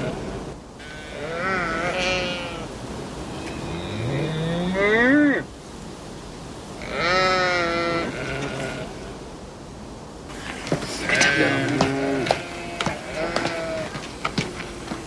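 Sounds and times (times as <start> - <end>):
livestock bleating: 0.0 - 2.7, 6.8 - 8.9, 10.3 - 14.1.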